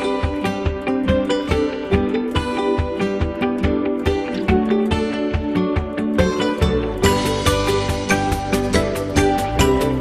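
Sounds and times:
plucked-string instrumental music: 0.0s - 10.0s.

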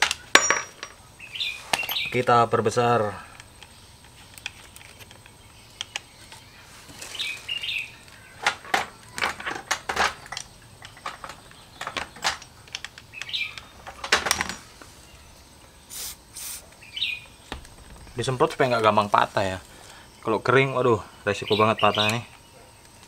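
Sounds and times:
metal tools clinking: 0.0s - 1.1s, 1.7s - 2.2s
bird chirping: 0.0s - 9.1s, 9.8s - 14.1s, 14.7s - 23.0s.

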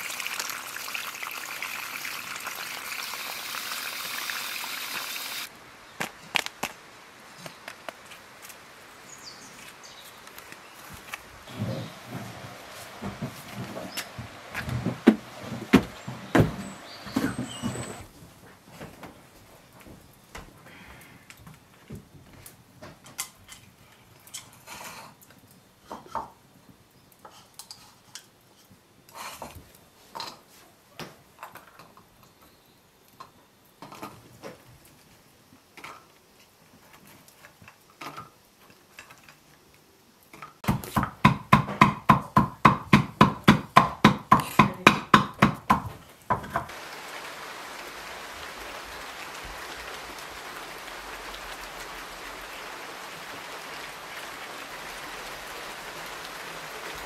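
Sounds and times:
rain hissing: 0.0s - 18.2s, 46.1s - 57.0s
wooden pestle pounding in mortar: 40.7s - 46.5s.

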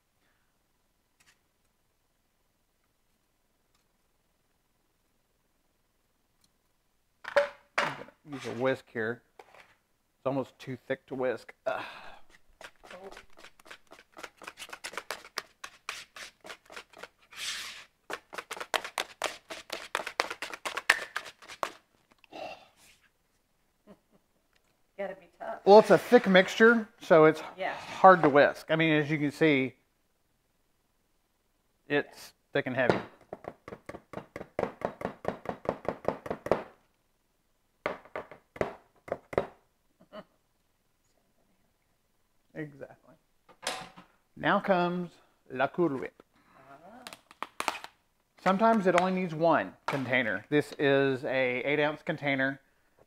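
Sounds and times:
whisk beating in plastic bowl: 12.6s - 17.2s, 18.1s - 21.8s
whisk clicking in plastic bowl: 18.1s - 21.8s.

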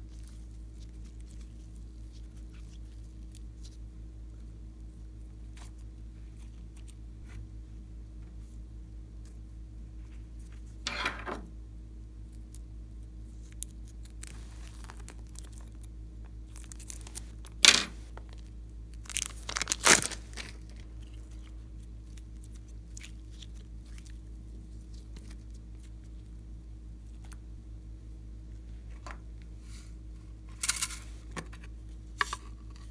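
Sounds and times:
steady low hum: 0.0s - 32.9s
plastic bag crinkling: 13.4s - 26.3s.

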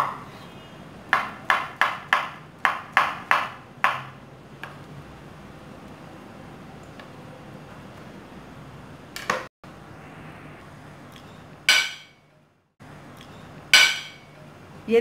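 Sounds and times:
low steady hum: 5.0s - 15.0s.

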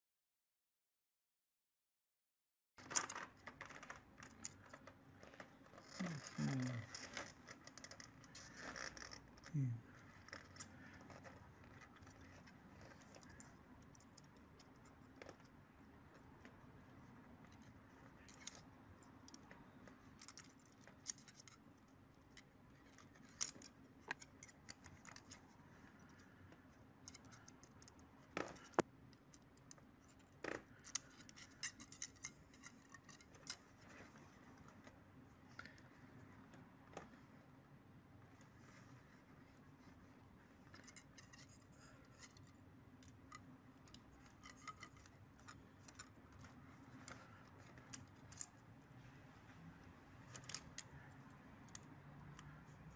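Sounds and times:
feeler gauge clicking and scraping: 22.3s - 34.2s, 40.7s - 48.6s.

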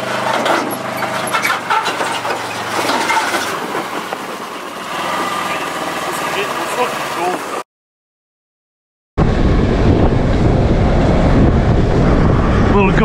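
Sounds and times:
tracks clanking on metal: 0.0s - 6.4s
utility vehicle engine running: 0.0s - 7.6s.

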